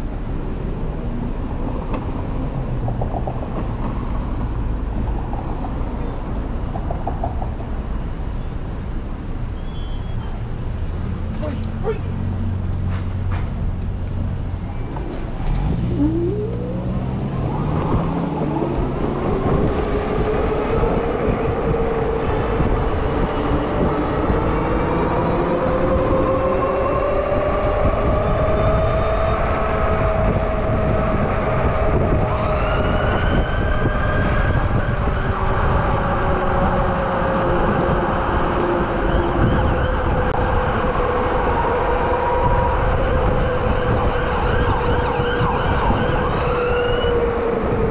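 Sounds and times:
tyre and wind noise: 16.8s - 47.9s.

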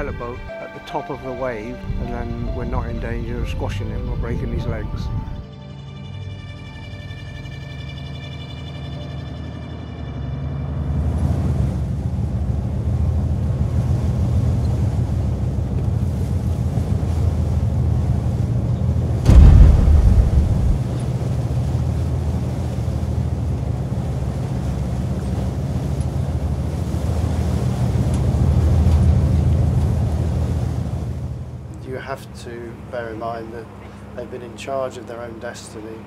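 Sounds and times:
water rushing between hulls: 10.7s - 34.1s
wind buffeting microphone: 18.5s - 21.3s
loud low rumbling thump: 19.3s - 21.0s.

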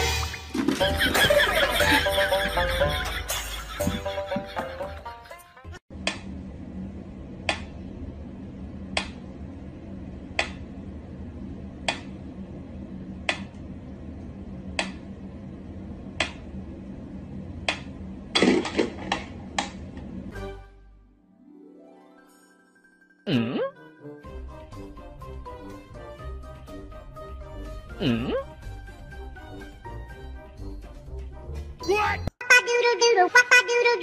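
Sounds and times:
steady low hum: 5.9s - 20.4s.

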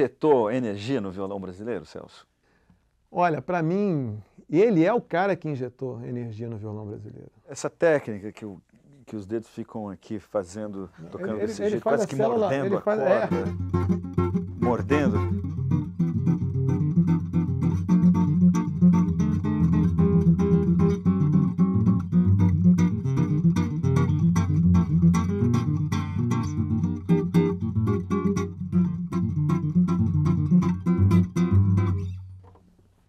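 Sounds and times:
fingerstyle acoustic guitar: 11.5s - 32.8s.

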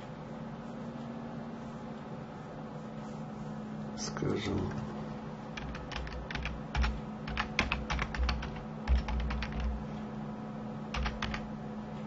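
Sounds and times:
faint steady hum: 0.0s - 12.0s
keyboard key clicks: 5.6s - 9.8s.

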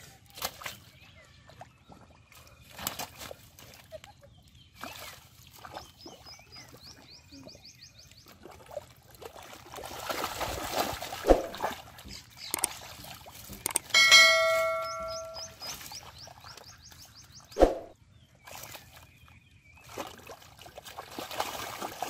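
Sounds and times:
mud sloshing and squelching: 8.2s - 13.9s, 17.6s - 22.0s
sharp splash: 9.2s - 12.0s, 17.6s - 17.9s, 19.8s - 22.0s
small bird chirping: 12.1s - 12.9s, 13.6s - 17.9s
bell-like ding: 13.9s - 15.6s.

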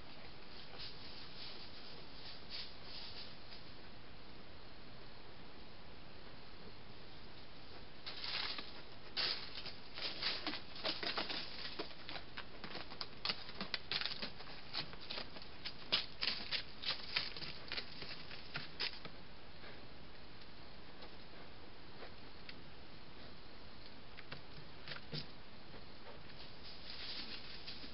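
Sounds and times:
steady hiss: 0.0s - 11.8s
footsteps on leaves and stones: 8.0s - 19.1s, 26.4s - 27.9s.

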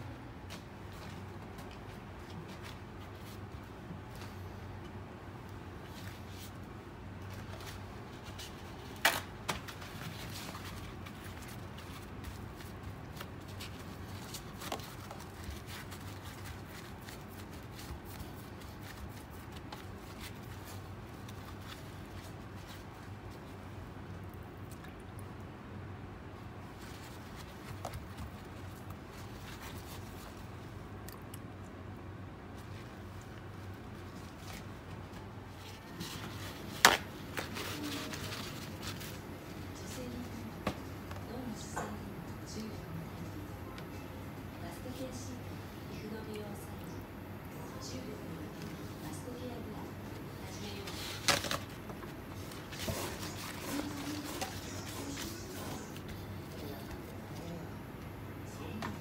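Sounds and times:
low steady hum: 0.0s - 59.0s
paper towel rustling: 5.6s - 24.0s, 26.4s - 31.0s, 32.4s - 41.6s, 48.3s - 57.7s.

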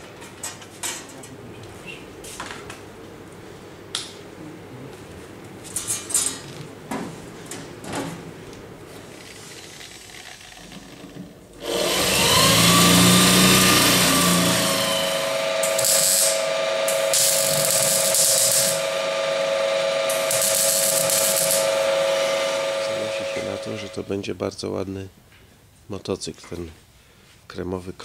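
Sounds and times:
steady hum: 11.2s - 24.3s
welding arc crackling: 11.6s - 24.0s
whirring with rising whine: 11.6s - 24.2s.

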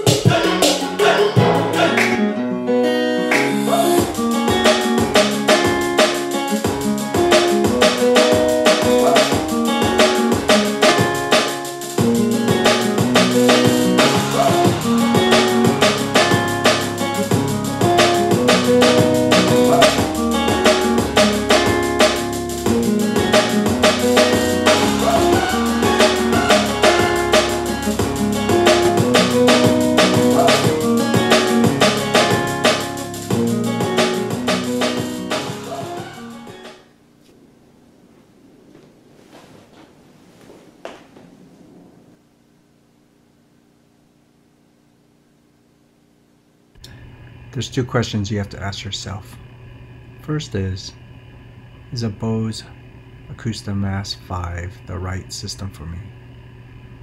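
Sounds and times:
music with drums and guitar: 0.0s - 2.4s, 3.2s - 36.8s
deep bass line: 13.0s - 36.2s.

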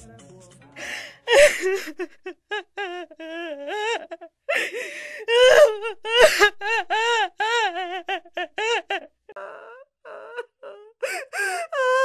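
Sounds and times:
sobbing gasps for breath: 0.8s - 2.3s, 3.5s - 7.0s, 9.7s - 12.0s
person crying and wailing: 0.8s - 12.0s.

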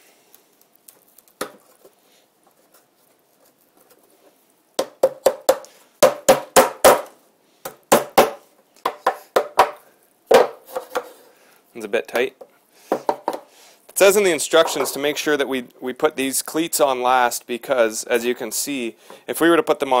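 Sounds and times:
sharp wooden knocks: 4.8s - 7.1s, 7.9s - 11.1s.

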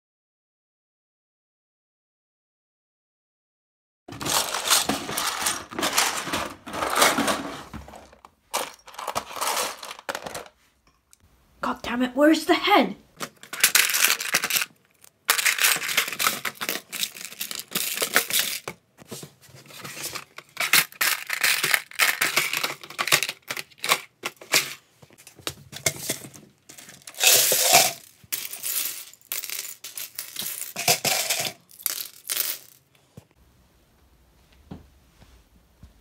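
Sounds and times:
plastic bricks rattling: 4.1s - 10.6s, 13.2s - 18.8s, 19.7s - 24.8s, 25.8s - 32.8s.

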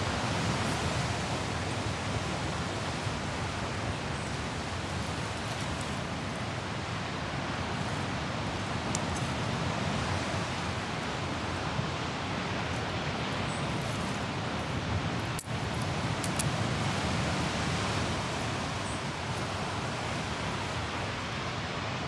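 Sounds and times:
ocean surf rushing: 0.0s - 22.0s
campfire ticks and pops: 15.2s - 16.6s.

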